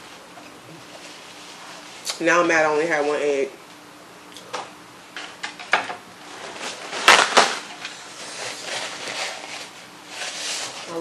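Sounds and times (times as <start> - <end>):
paper towel rustling: 6.2 - 11.0.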